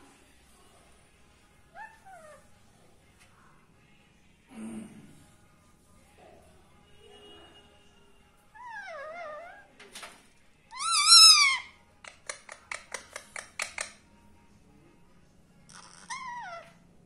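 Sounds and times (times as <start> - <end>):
parakeets squawking: 10.7 - 14.0, 15.7 - 16.7.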